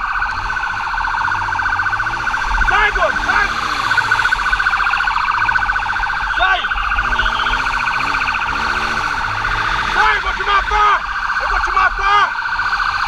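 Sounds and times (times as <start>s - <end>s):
fast-pulsing siren: 0.0s - 13.0s
person shouting: 2.7s - 3.7s.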